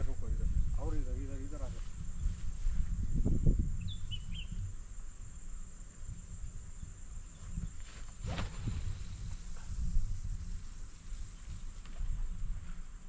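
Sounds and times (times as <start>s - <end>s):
high insect trill: 0.0s - 13.0s
bird chirps: 3.8s - 4.6s.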